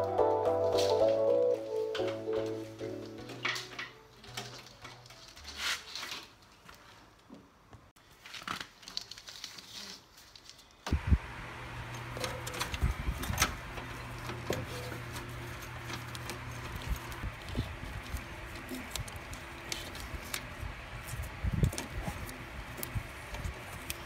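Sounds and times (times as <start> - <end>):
wires clicking and rustling: 1.9 - 7.4, 11.7 - 24.0
steady low hum: 10.9 - 24.0.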